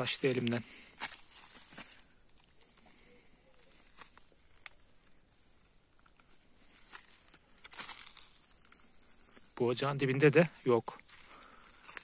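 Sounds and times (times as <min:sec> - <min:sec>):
footsteps on dry leaves: 0:00.0 - 0:03.0, 0:03.6 - 0:04.6, 0:06.4 - 0:12.0.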